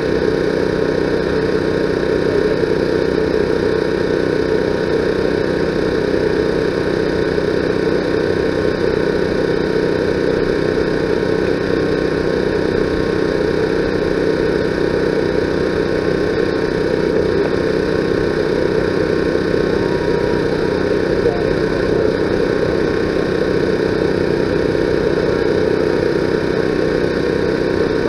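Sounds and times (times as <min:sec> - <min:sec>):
engine humming: 0:00.0 - 0:28.0.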